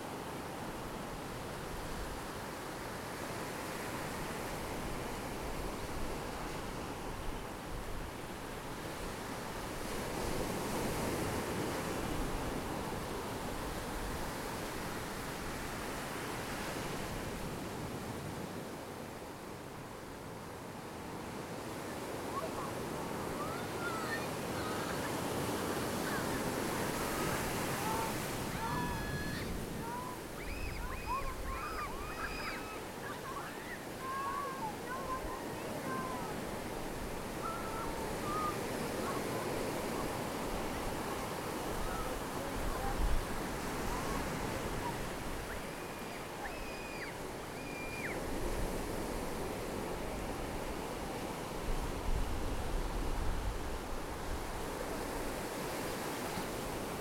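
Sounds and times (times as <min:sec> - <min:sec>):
ocean surf breaking on beach: 0:00.0 - 0:57.0
short high arching calls: 0:28.0 - 0:35.0, 0:45.5 - 0:48.2.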